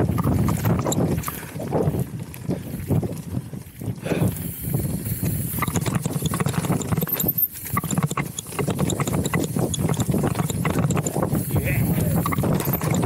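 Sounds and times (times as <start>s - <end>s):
bike tyres crunching over stones: 0.0s - 8.6s
bike rattling and clicking: 0.0s - 13.0s.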